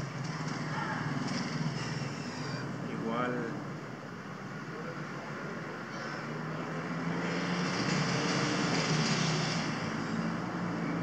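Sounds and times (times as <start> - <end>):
vehicle passing: 4.8 - 11.0.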